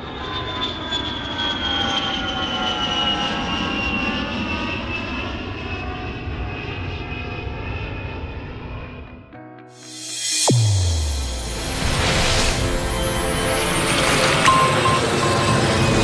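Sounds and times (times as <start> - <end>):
jet airliner taking off: 0.0 - 9.2, 9.9 - 16.0
high engine whine: 9.9 - 16.0.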